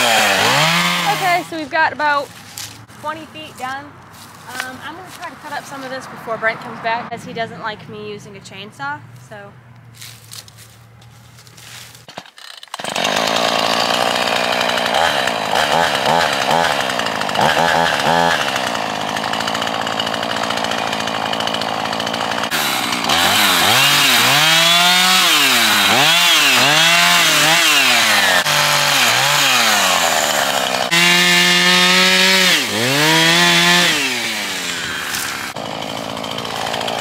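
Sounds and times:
chainsaw revving: 0.0 - 2.8, 12.3 - 37.0.

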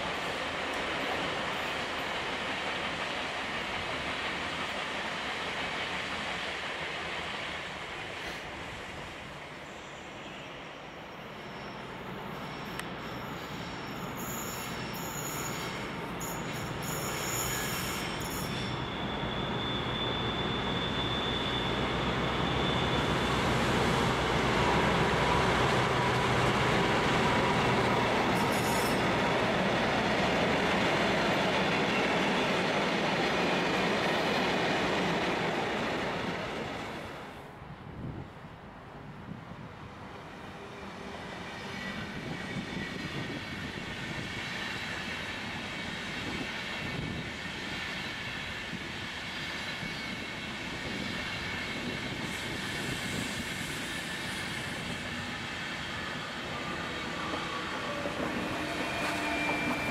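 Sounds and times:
diesel locomotive passing: 0.0 - 59.9
wheels squealing: 11.4 - 23.6, 27.2 - 29.3, 51.0 - 59.9.

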